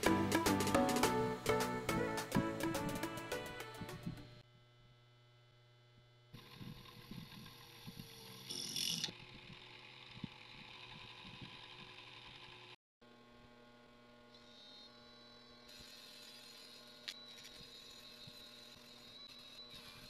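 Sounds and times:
small motor humming: 3.8s - 20.0s
drill grinding into metal tube: 6.4s - 12.8s, 14.3s - 20.0s.

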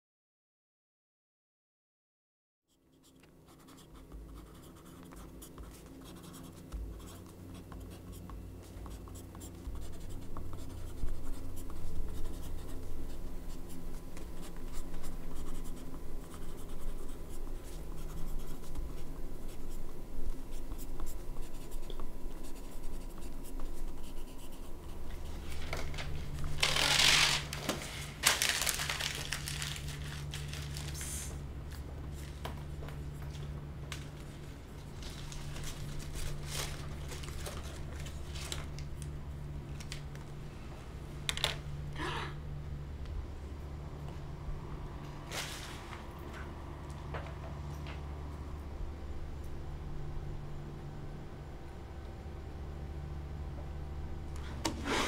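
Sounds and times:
pencils scratching on paper: 2.7s - 27.2s
low room hum: 2.7s - 55.0s.

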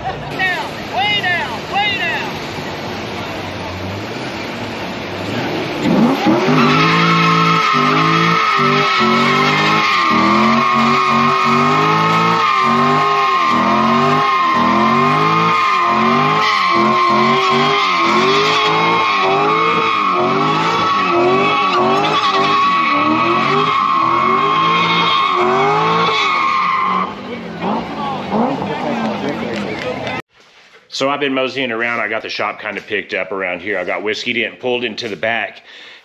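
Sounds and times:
engine revving: 2.8s - 30.0s
tyres squealing: 5.3s - 30.0s.

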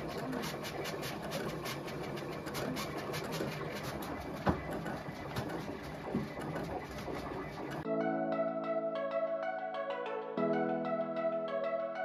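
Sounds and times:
vinyl cutter whirring and ticking: 0.0s - 7.8s.

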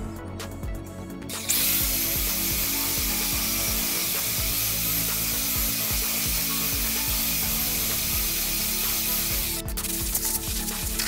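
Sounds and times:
belt sander hissing on wood: 1.3s - 9.6s.

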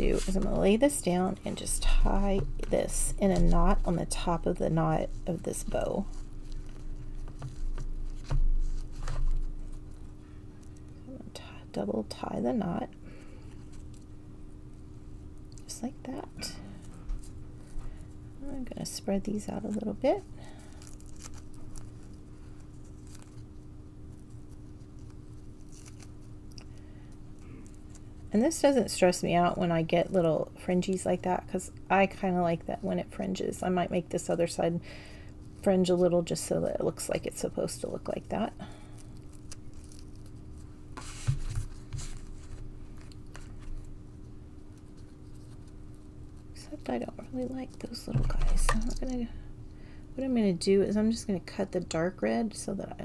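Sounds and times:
ribbon and card rustling: 0.0s - 11.0s, 14.7s - 31.4s, 35.4s - 49.4s
faint steady hum: 0.0s - 53.0s
ribbon bow crinkling: 19.4s - 28.2s, 39.0s - 49.3s.

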